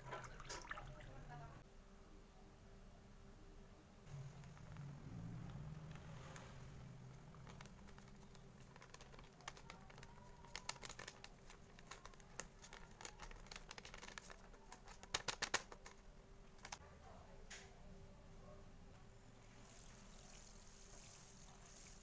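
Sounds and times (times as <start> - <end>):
sachet crinkling: 7.0 - 16.0.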